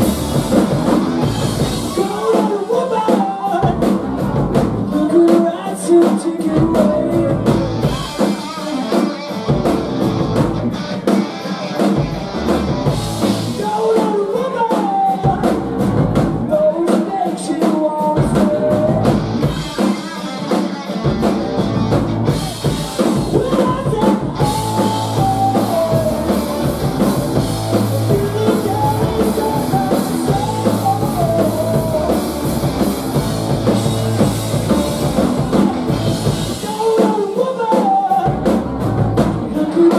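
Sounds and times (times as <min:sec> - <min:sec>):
distorted electric guitar: 0:00.0 - 0:02.5, 0:06.6 - 0:13.7, 0:18.2 - 0:36.9
bass guitar: 0:00.0 - 0:16.9, 0:18.0 - 0:37.1, 0:38.1 - 0:39.9
drum kit: 0:00.0 - 0:39.9
person singing: 0:01.3 - 0:09.2, 0:13.4 - 0:15.8, 0:16.4 - 0:21.0, 0:22.3 - 0:39.9.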